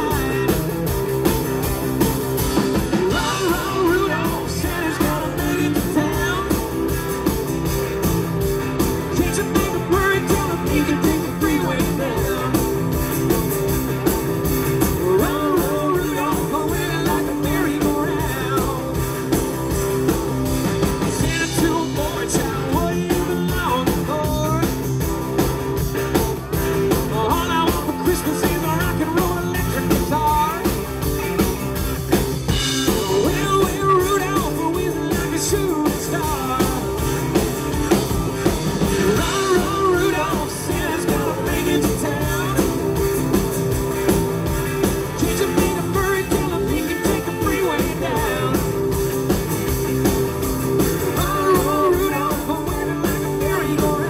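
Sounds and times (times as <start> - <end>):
man singing into a microphone: 0.0 - 0.8, 2.9 - 6.7, 9.1 - 12.9, 14.9 - 19.1, 21.1 - 24.9, 27.0 - 30.8, 32.8 - 37.1, 39.0 - 43.0, 45.2 - 48.9, 51.1 - 54.0
drum kit: 0.0 - 54.0
electric guitar: 0.0 - 54.0.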